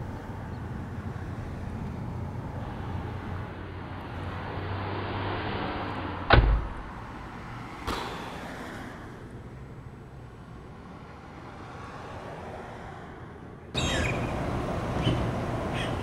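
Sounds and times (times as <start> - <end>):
car door slamming: 6.3 - 7.0.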